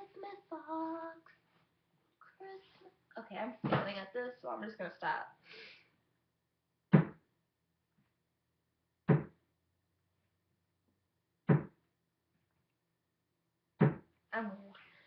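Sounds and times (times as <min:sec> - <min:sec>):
dull thumps: 0:06.9 - 0:07.2, 0:09.1 - 0:09.4, 0:11.5 - 0:11.8, 0:13.8 - 0:14.1.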